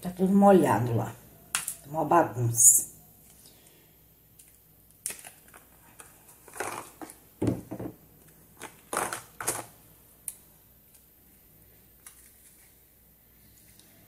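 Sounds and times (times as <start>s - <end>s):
plastic molds crackling: 4.4s - 7.2s
soap bars knocking on table: 7.4s - 8.0s.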